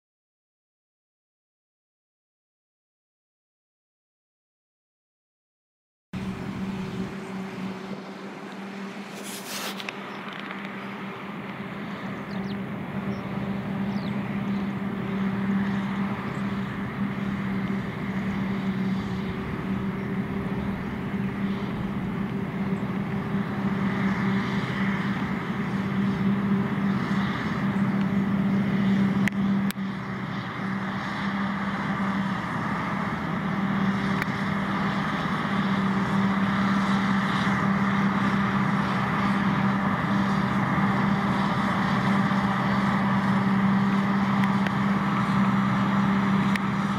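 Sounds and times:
tractors running: 6.2s - 46.9s
forage harvester chopping: 8.4s - 10.8s.

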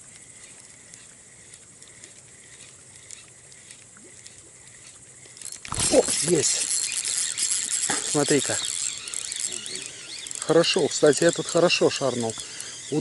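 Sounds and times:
faint light ticks: 0.0s - 5.7s
insects chirring: 0.0s - 13.0s.

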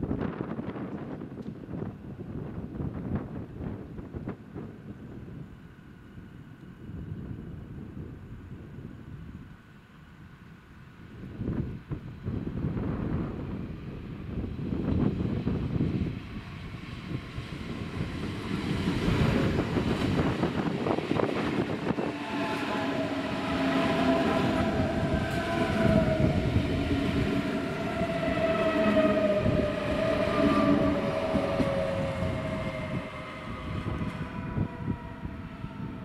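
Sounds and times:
train wheels rumbling on rails: 0.0s - 36.0s
electric train drive whining: 11.4s - 36.0s.

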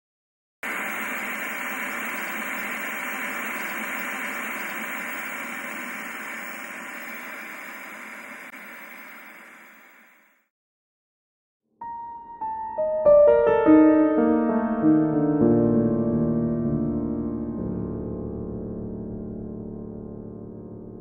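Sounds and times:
tv static hiss: 0.6s - 10.4s.

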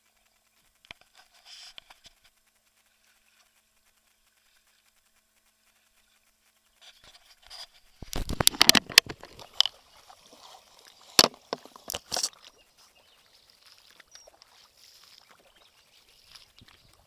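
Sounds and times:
faint water sounds: 0.0s - 17.0s
splashes in shallow water: 7.9s - 17.0s.

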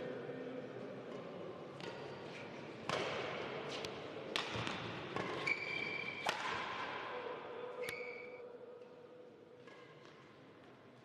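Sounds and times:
shoes squeaking on court: 5.2s - 6.2s
racket hitting shuttlecock: 6.2s - 7.0s.

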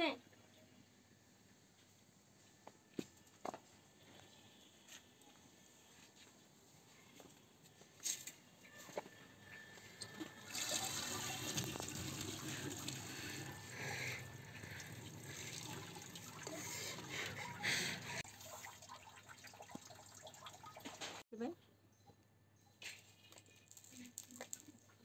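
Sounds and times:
tap water running into colander: 10.4s - 17.7s, 18.3s - 21.2s.

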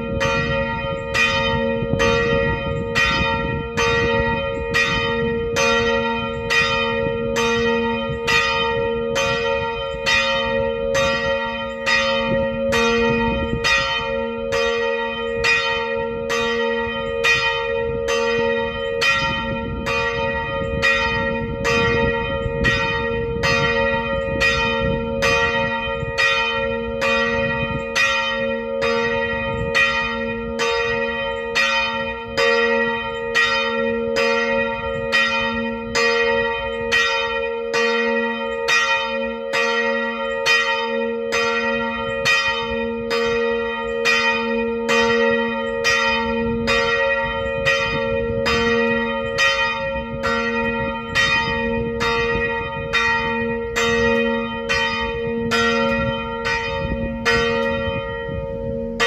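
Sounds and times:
church bell ringing: 0.0s - 59.0s.

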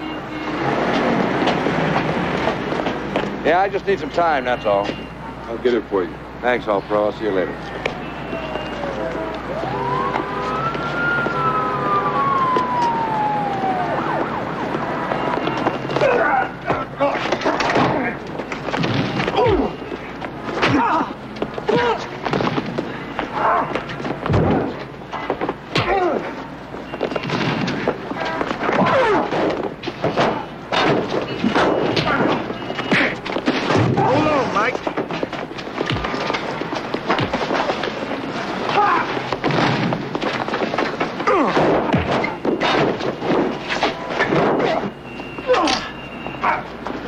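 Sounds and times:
low street rumble: 0.0s - 47.0s
emergency vehicle siren wailing: 7.4s - 17.0s
thuds and blows: 15.2s - 19.8s, 21.6s - 23.0s, 23.7s - 26.2s, 27.1s - 38.0s, 38.7s - 44.8s
men grunting and shouting: 16.0s - 18.2s, 20.6s - 22.1s, 28.6s - 29.6s, 38.6s - 39.3s, 41.2s - 42.0s, 45.5s - 46.7s.

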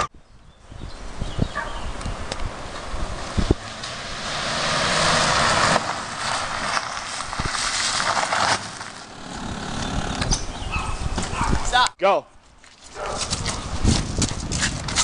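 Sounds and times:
tyres crunching over gravel: 2.7s - 10.4s.

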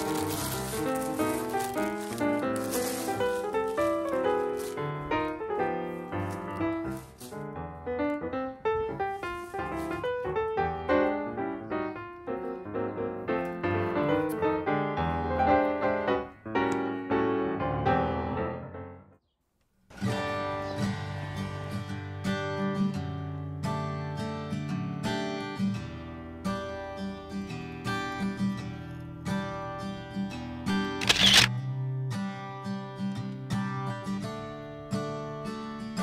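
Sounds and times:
piano music: 0.0s - 19.2s.

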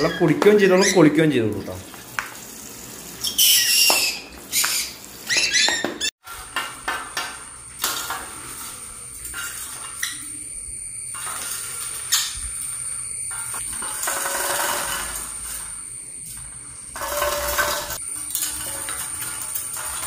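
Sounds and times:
parrots calling shrilly: 3.2s - 6.1s.

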